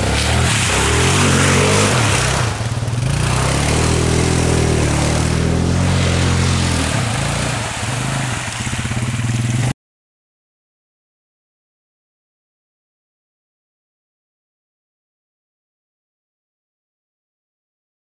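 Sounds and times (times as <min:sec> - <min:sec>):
atv engine revving: 0:00.0 - 0:09.7
splashing and spinning tyres: 0:00.0 - 0:09.8.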